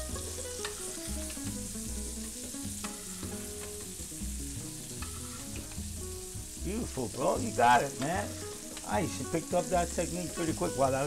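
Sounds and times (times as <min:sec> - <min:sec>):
butter sizzling in a frying pan: 0:00.0 - 0:11.0
spoon clicking against pan: 0:08.0 - 0:08.9.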